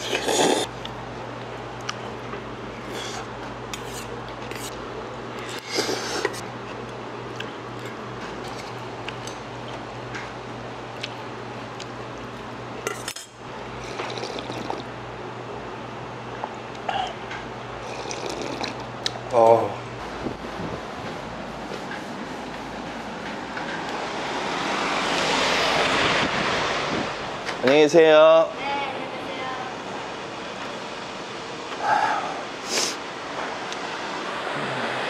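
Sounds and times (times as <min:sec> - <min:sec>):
steady low hum: 0:00.0 - 0:24.9.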